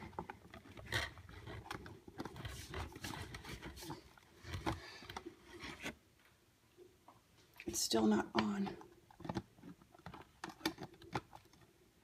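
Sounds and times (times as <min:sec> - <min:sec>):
plastic lid clicking and scraping: 0:00.0 - 0:06.0, 0:08.4 - 0:11.7.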